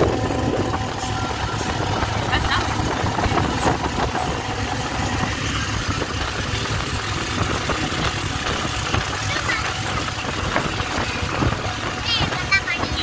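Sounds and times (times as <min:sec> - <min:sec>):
vehicle engine and road noise: 0:00.0 - 0:13.0.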